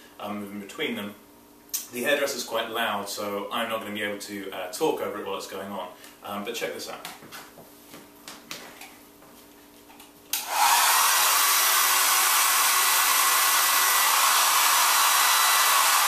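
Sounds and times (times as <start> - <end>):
hairdryer running: 10.3 - 16.0.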